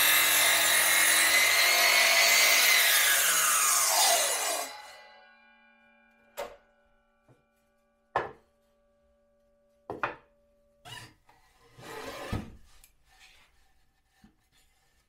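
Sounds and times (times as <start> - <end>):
saw blade whine coasting down: 0.0 - 6.3
wood knocking on saw table: 9.9 - 10.2
boards sliding and rubbing: 10.9 - 15.0.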